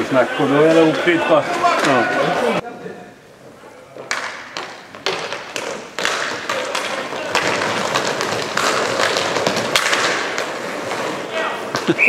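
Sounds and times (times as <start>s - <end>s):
clatter of skates: 4.0s - 12.0s
hockey sticks knocking puck: 4.0s - 12.0s.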